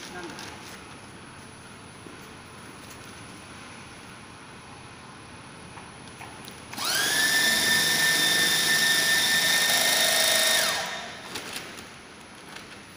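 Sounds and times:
sewing machine motor whine: 6.8s - 11.3s.

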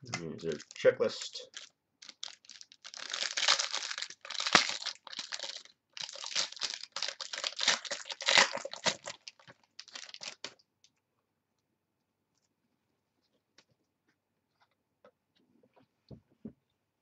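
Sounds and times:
wrapper crinkling and tearing: 0.4s - 10.6s.

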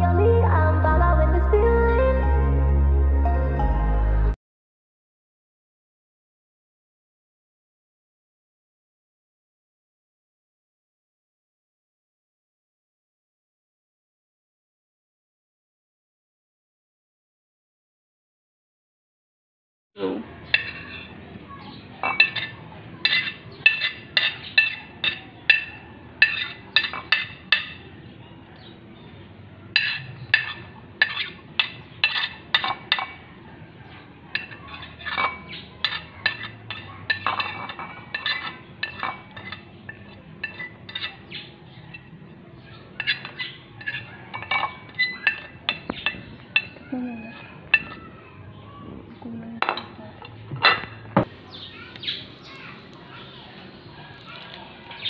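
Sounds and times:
spoon clinking on porcelain: 20.5s - 21.1s, 22.0s - 27.8s, 29.8s - 33.2s, 34.3s - 41.2s, 43.0s - 46.8s, 47.7s - 48.0s.

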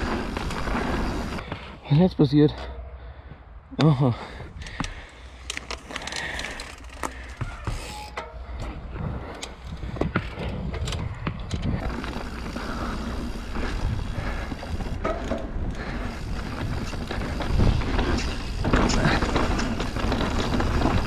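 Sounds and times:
bike tyres rolling on dirt: 0.0s - 2.0s, 4.2s - 21.0s
bike clicks and knocks: 4.5s - 21.0s.

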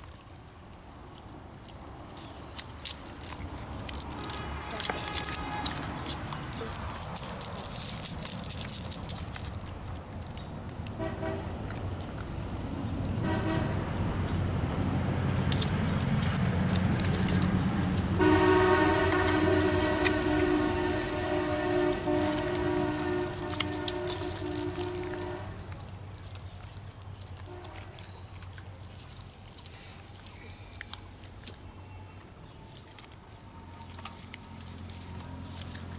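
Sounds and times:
low steady hum: 0.0s - 35.9s
wet net rustling and clicking: 1.6s - 11.0s, 14.2s - 18.3s, 21.4s - 31.6s.

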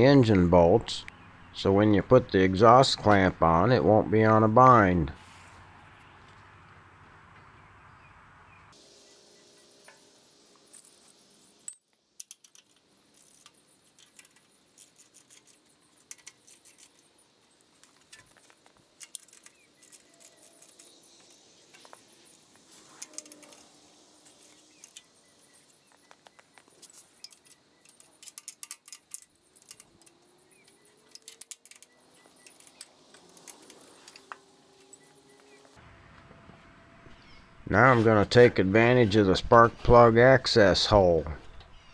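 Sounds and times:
metallic clicks of hand tools: 11.9s - 17.1s, 22.8s - 25.1s, 26.1s - 34.4s.

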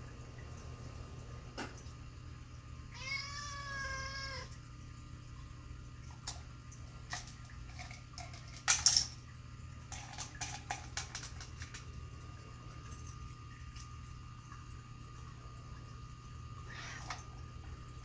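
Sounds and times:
cat meowing: 2.9s - 4.5s.

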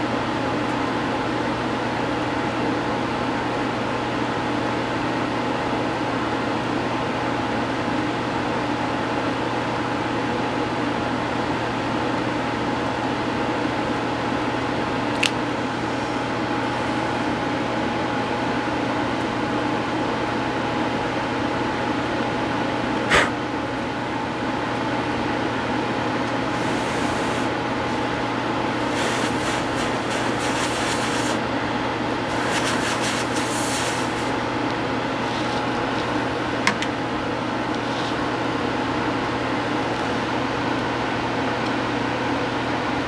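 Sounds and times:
mechanical hum: 0.0s - 43.0s
sharp click: 23.1s - 23.3s
scratchy rubbing: 28.8s - 31.4s, 32.3s - 34.3s.

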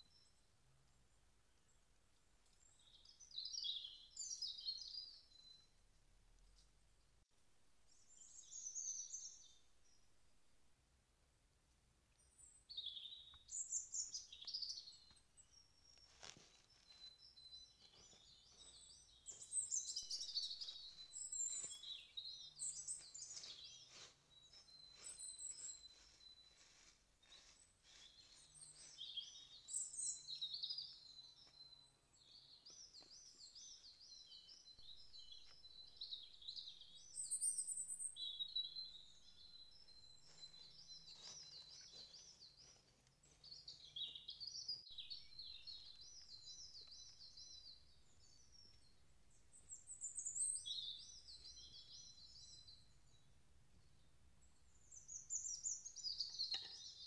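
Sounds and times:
songbirds singing: 0.0s - 10.8s, 12.0s - 57.0s
rustles: 14.2s - 17.2s, 17.8s - 30.0s.

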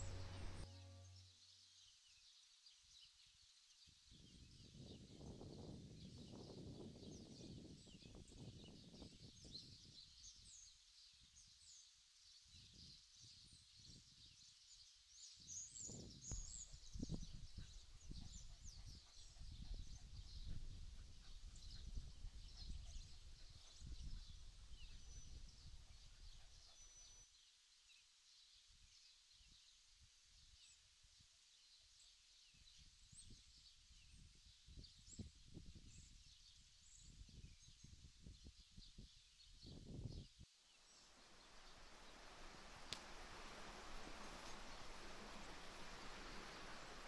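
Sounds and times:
low rumble: 0.0s - 1.2s
small birds chirping: 0.0s - 30.9s, 31.5s - 47.0s.

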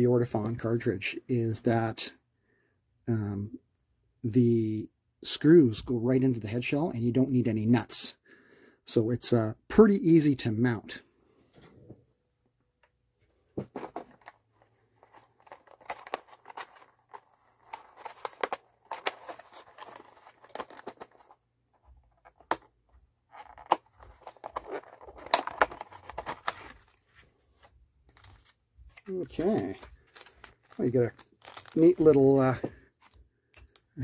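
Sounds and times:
plastic packaging crinkling: 15.0s - 21.4s, 23.3s - 27.2s, 28.1s - 33.8s.

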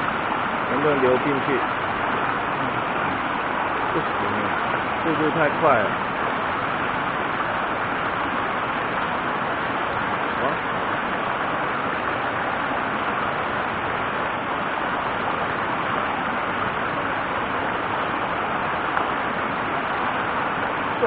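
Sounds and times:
stream rushing over rocks: 0.0s - 21.0s.

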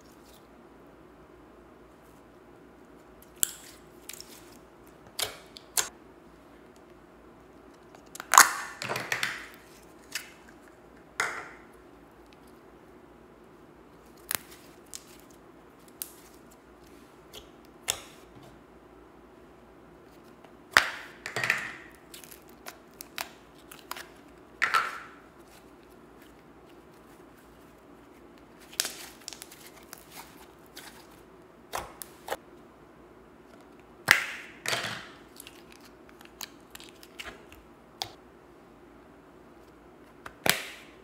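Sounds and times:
slime squelching: 21.9s - 32.4s, 35.2s - 38.2s.

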